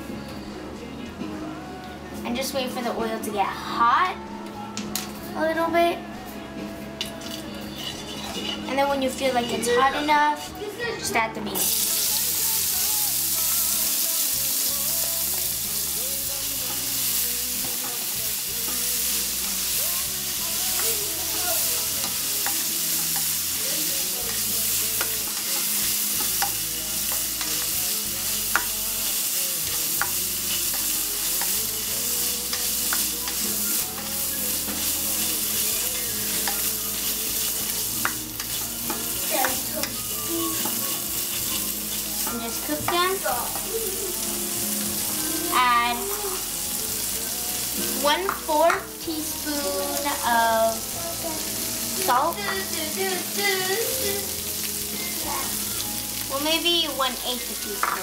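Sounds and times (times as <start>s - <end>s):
beans sizzling in oil: 7.1s - 10.5s, 11.6s - 58.0s
spatula scraping a metal pan: 7.2s - 10.5s.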